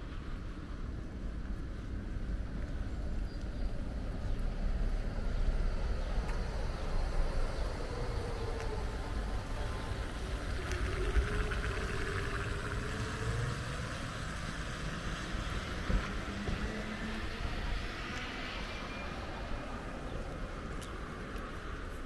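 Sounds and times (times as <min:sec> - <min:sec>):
low traffic rumble: 0:00.0 - 0:22.0
vehicle engine hum: 0:00.0 - 0:22.0.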